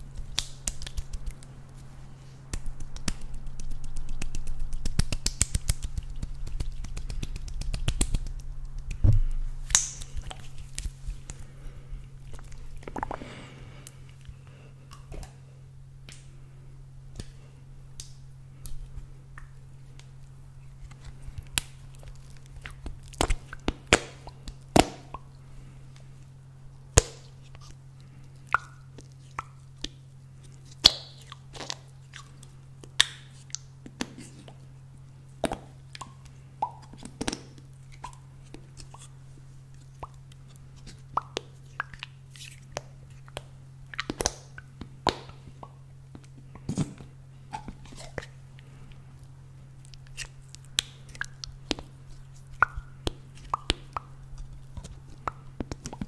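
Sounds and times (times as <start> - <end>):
steady low hum: 0.0 - 56.0.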